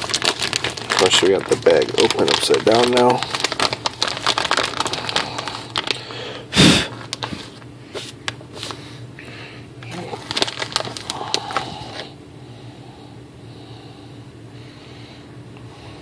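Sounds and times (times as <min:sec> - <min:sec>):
plastic snack bag crinkling: 0:00.0 - 0:08.9, 0:09.8 - 0:12.1.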